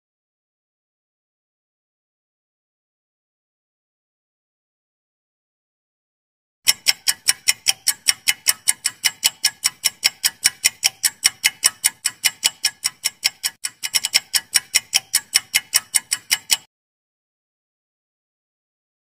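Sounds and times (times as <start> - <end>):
clock ticking: 6.6 - 16.7.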